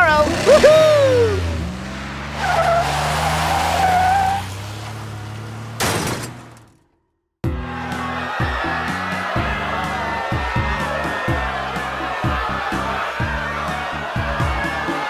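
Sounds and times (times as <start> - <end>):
cartoon truck engine running: 0.0 - 15.0
tyre squeal: 2.4 - 4.8.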